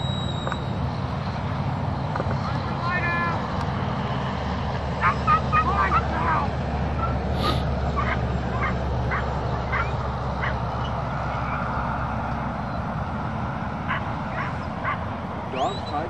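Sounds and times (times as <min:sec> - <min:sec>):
dogs barking: 0:04.9 - 0:11.6, 0:13.8 - 0:15.3.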